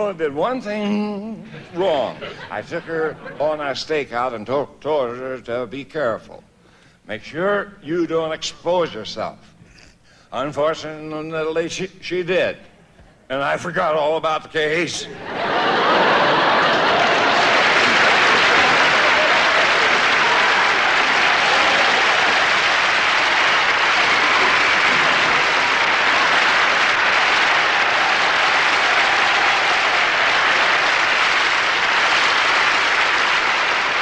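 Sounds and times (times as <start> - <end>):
large audience applauding: 15.3 - 34.0.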